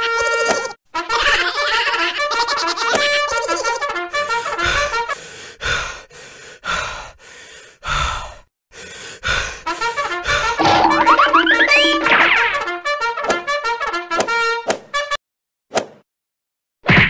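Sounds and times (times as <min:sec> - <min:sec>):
heavy panting breaths: 0:04.2 - 0:10.6
comic brass music: 0:10.6 - 0:14.2.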